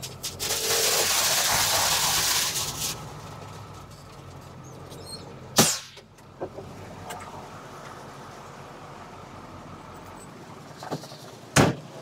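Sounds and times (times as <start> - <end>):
sharp bang: 5.6 - 6.0.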